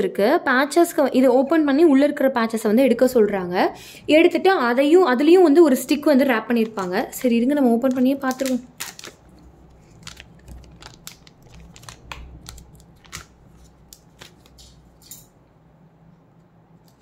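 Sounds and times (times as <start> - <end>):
paper carton clicks and rustles: 9.9 - 15.2.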